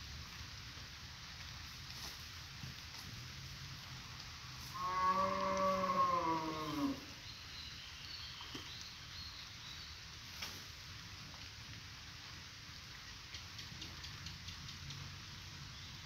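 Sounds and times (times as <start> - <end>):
cow mooing: 4.7 - 7.1.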